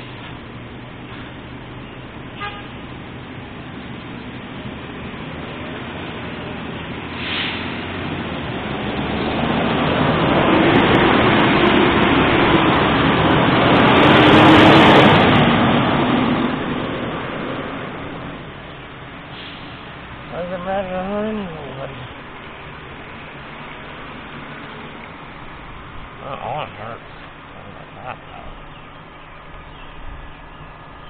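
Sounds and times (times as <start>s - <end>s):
vehicle passing by: 4.4s - 31.0s
high hiss: 19.3s - 24.2s.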